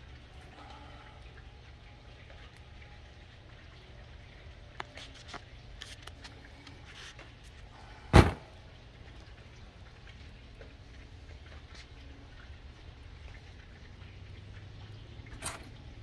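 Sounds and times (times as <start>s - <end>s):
low steady hum: 0.0s - 16.0s
loud thud: 8.1s - 8.5s.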